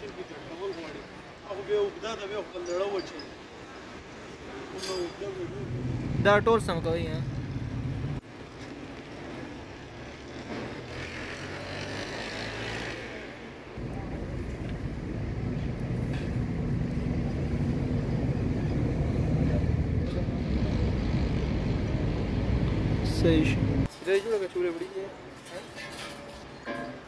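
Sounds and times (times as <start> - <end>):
low rumble of motor vehicles: 5.2 - 23.9.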